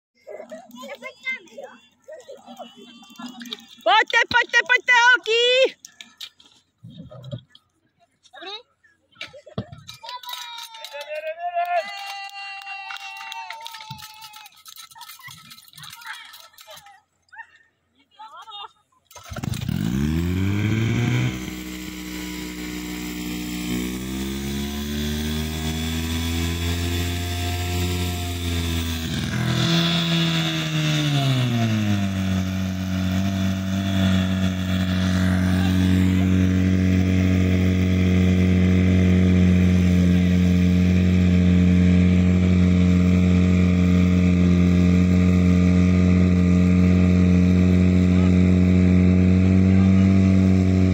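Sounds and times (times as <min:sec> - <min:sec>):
pump engine running: 0:19.1 - 0:50.9.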